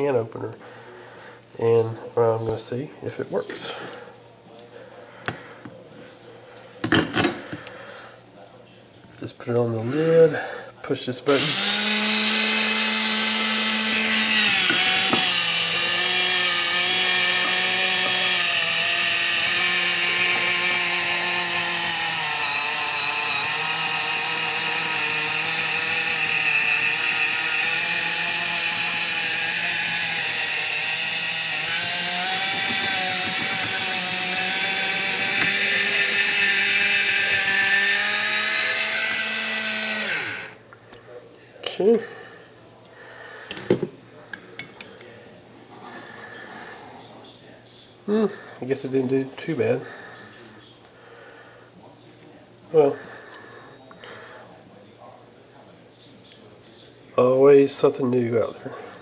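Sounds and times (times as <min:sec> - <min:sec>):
can opener motor whining: 0:11.2 - 0:40.6.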